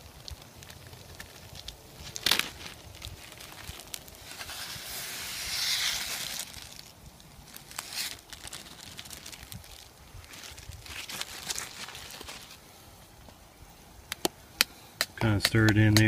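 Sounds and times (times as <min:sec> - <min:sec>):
plastic bag crackling: 0:00.0 - 0:12.6
grains pouring with a hiss: 0:00.0 - 0:12.9.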